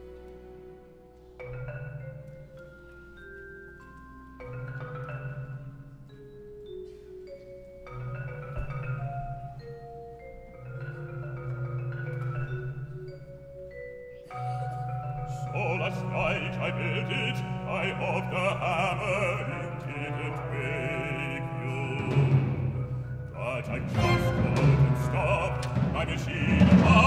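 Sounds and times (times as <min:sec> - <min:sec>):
tuned mallet percussion: 0:00.0 - 0:27.0
orchestral low swells: 0:15.3 - 0:27.0.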